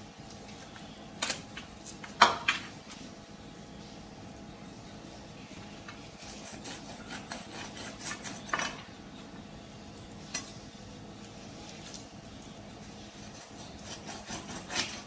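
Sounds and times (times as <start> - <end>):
knife scraping chicken skin: 6.2 - 8.8, 13.0 - 15.0.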